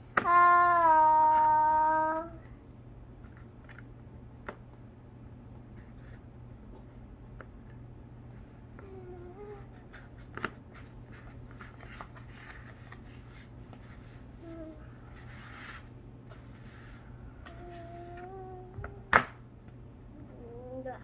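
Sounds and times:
person humming: 17.4s - 19.1s.

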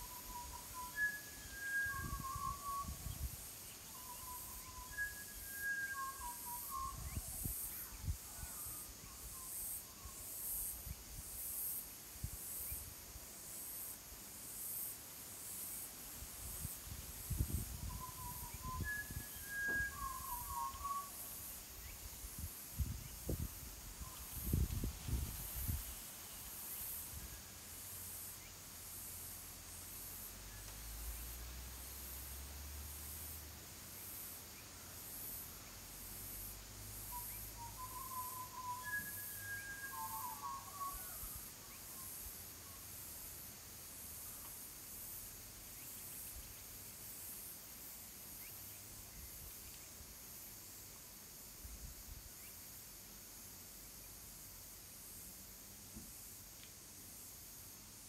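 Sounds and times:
bird chirps: 0.0s - 10.2s, 17.5s - 22.0s, 37.1s - 42.8s
pulsing insect chorus: 0.0s - 58.0s
wind rumbling on microphone: 1.9s - 3.4s, 16.6s - 20.9s, 21.9s - 26.0s.

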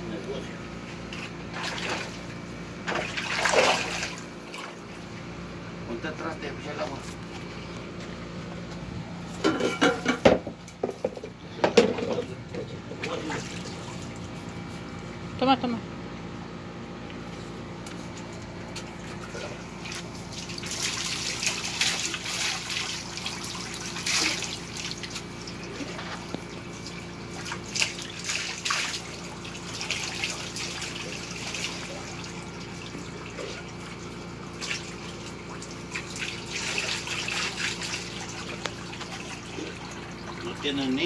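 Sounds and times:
water splashing into paddling pool: 2.9s - 4.9s, 19.0s - 40.7s.

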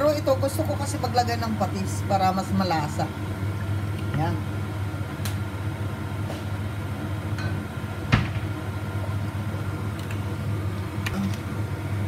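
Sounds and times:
appliance hum: 0.0s - 12.0s.

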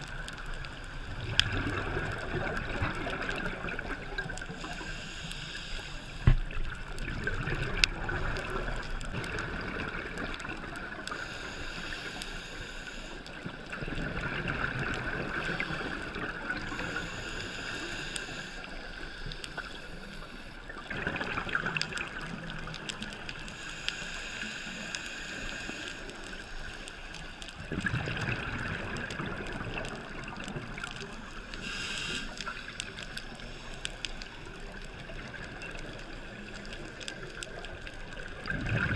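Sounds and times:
regulator hiss: 4.5s - 6.5s, 11.1s - 13.4s, 15.3s - 20.7s, 23.4s - 27.4s, 31.2s - 34.0s.

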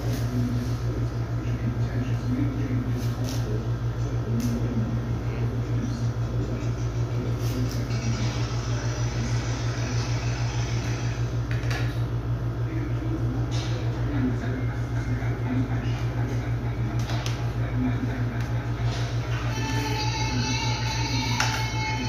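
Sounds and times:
pulsing machine hum: 0.0s - 22.0s.

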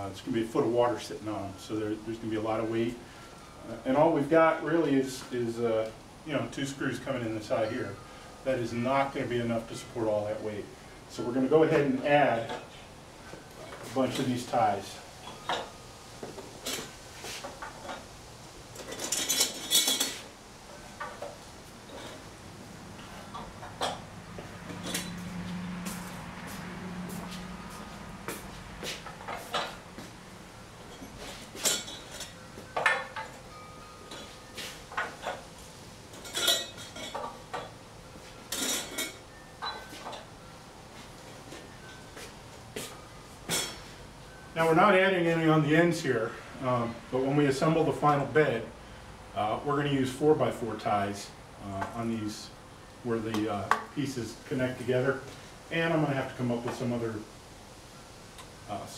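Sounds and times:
steel brackets clinking: 13.4s - 15.9s, 18.7s - 25.3s, 28.8s - 30.0s, 30.6s - 37.8s, 38.4s - 40.6s, 43.4s - 44.6s.

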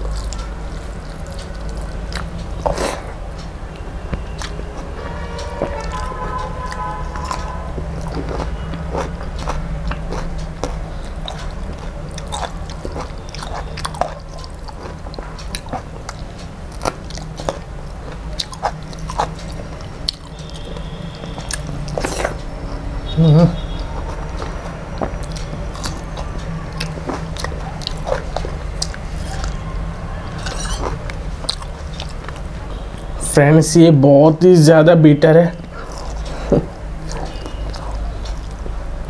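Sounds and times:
wet chewing mouth sounds: 0.0s - 33.2s, 35.6s - 39.0s.

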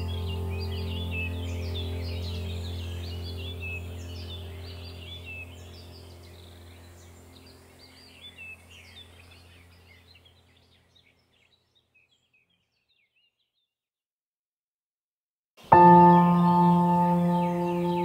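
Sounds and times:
low steady drone: 0.0s - 10.1s, 15.7s - 18.0s
bird chirps: 0.0s - 13.7s, 15.6s - 18.0s.

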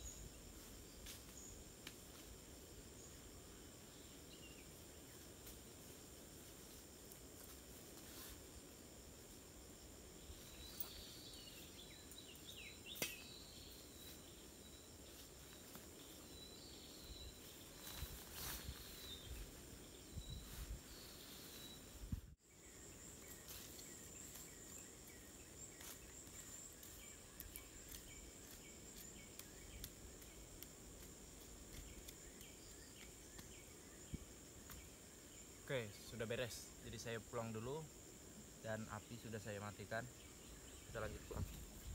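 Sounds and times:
high insect drone: 0.0s - 41.9s
bird chirps: 10.3s - 15.2s.

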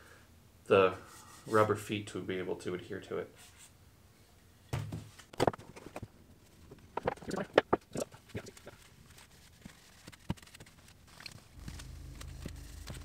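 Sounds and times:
objects knocking on wooden workbench: 4.7s - 5.6s.

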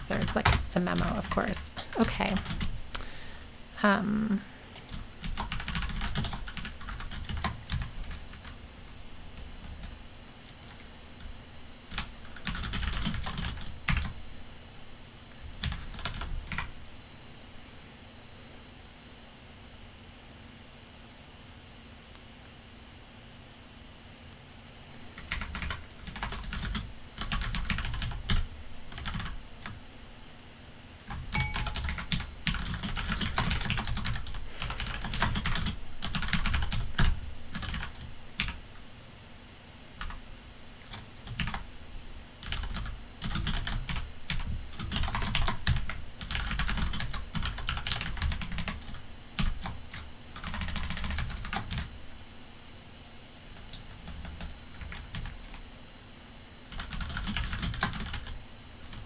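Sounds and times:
typing on computer keyboard: 2.4s - 2.8s, 4.8s - 8.6s, 11.9s - 14.2s, 15.6s - 16.7s, 25.2s - 29.8s, 31.1s - 38.6s, 40.8s - 41.6s, 42.4s - 51.9s, 53.6s - 55.6s, 56.7s - 59.0s.

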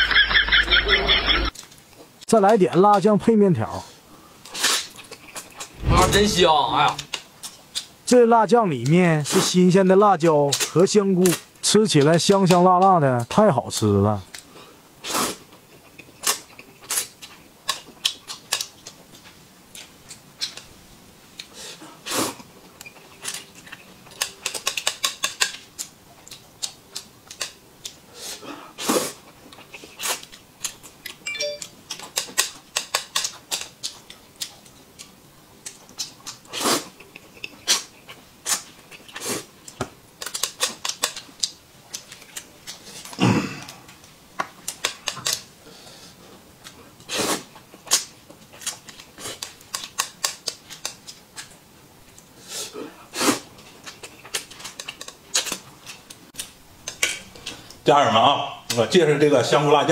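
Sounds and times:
man slurping noodles: 47.1s - 47.4s, 52.4s - 53.4s.

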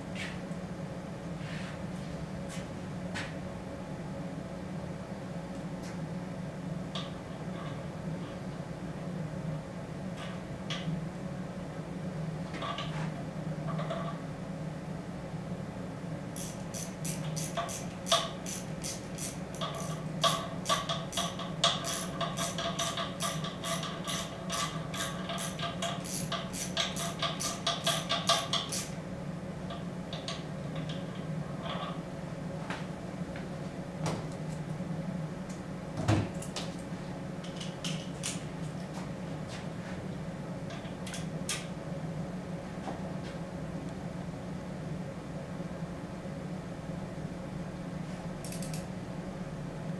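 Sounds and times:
steady low hum: 0.0s - 49.9s
socket ratchet clicking: 16.4s - 28.9s.

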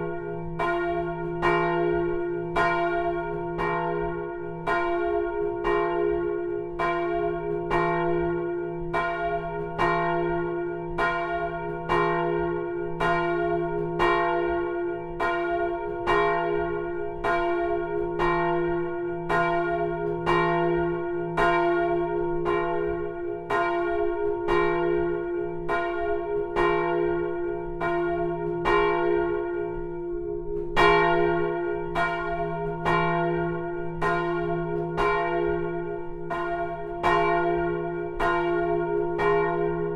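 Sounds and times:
church bell ringing: 0.0s - 39.9s.

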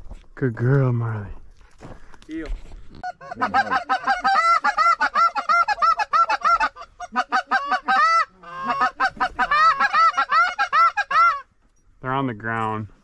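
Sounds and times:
goose honking and clucking: 3.0s - 11.5s.

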